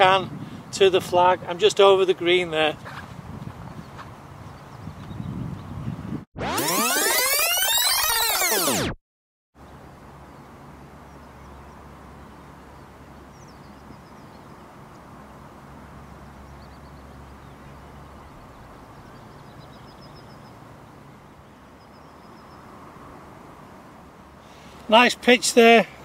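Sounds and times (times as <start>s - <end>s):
small birds chirping: 2.8s - 6.0s, 9.6s - 22.8s.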